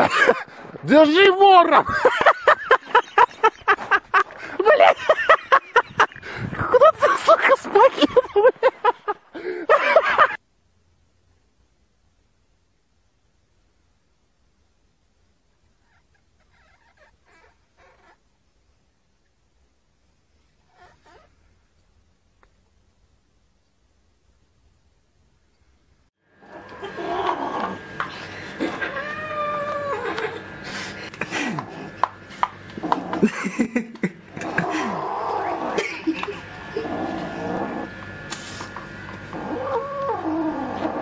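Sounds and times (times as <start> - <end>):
faint steady hiss: 8.3 - 26.1
low hum: 21.3 - 41.0
cat crying faintly: 28.8 - 30.2
kitten yowling: 28.8 - 30.4, 39.4 - 41.0.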